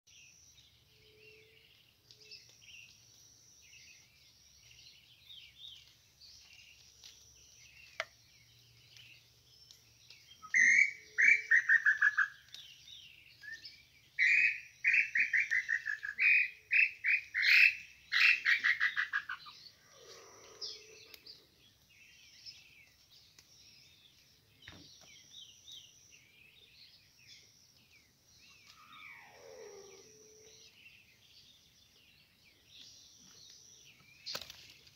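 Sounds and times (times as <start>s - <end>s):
small birds chirping: 0.1s - 34.9s
loud whistled bird song: 7.5s - 34.4s.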